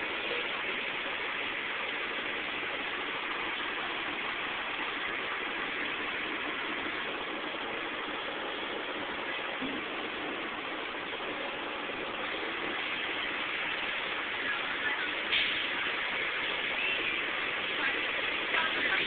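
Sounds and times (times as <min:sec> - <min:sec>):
street traffic noise: 0:00.0 - 0:19.0.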